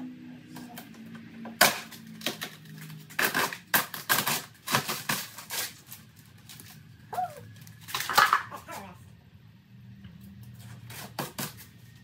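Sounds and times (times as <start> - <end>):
plastic cracking and snapping: 0.6 - 6.8, 7.5 - 8.5.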